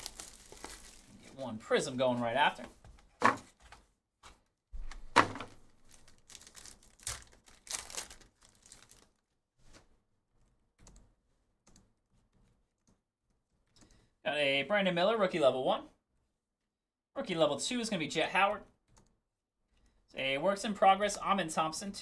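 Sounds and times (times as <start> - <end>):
foil pack crinkling: 0.0 - 1.3, 5.7 - 9.2.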